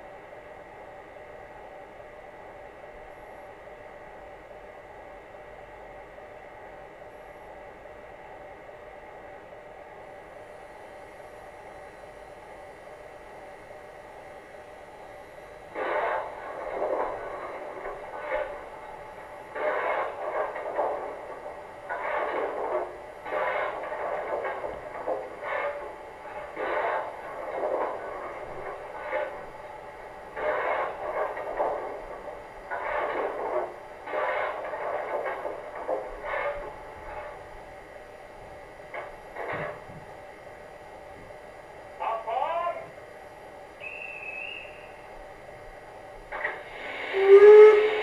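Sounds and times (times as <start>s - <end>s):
shovel scraping strokes: 32.7s - 35.5s.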